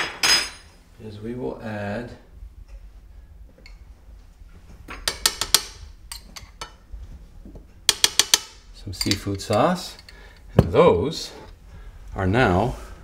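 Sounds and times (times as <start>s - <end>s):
metal spoon clinking on jar: 9.0s - 10.2s.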